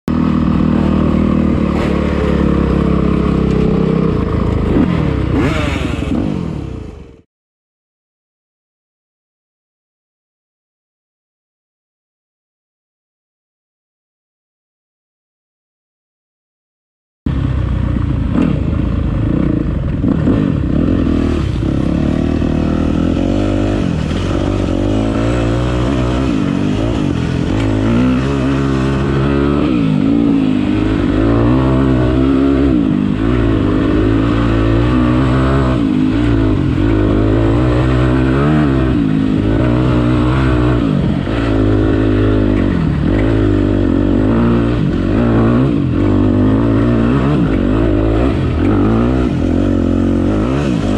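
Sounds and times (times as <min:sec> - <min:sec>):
dirt bike engine revving: 0:00.1 - 0:07.2, 0:17.3 - 0:50.9.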